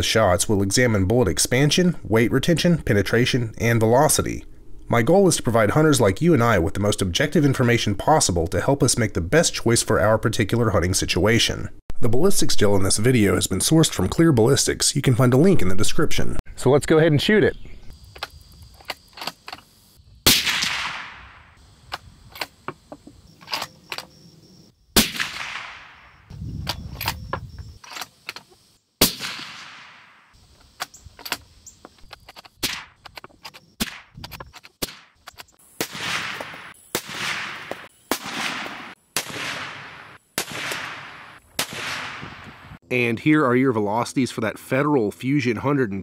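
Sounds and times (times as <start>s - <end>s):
suppressed rifle shots: 20.3s - 22.5s, 25.0s - 26.2s, 29.0s - 30.3s, 35.8s - 42.6s.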